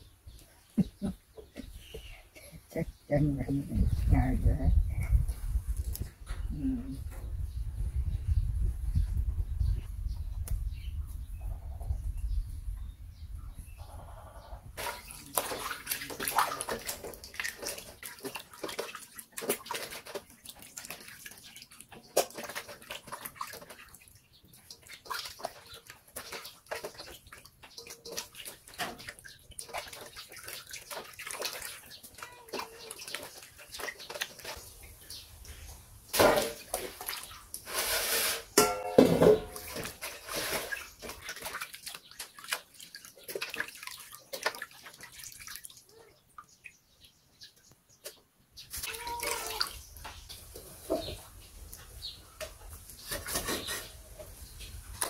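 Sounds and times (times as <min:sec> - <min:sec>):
water sloshing in metal bowl: 0:14.8 - 0:46.6.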